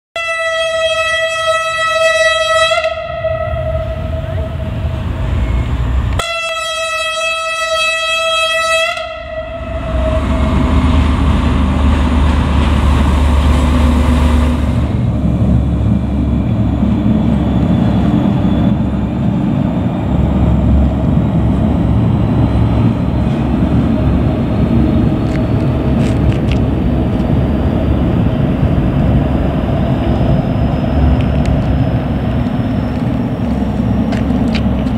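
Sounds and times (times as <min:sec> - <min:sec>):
locomotive horn blasts: 0:00.2 - 0:04.7, 0:06.1 - 0:10.7
freight train rumbling past: 0:00.2 - 0:34.9.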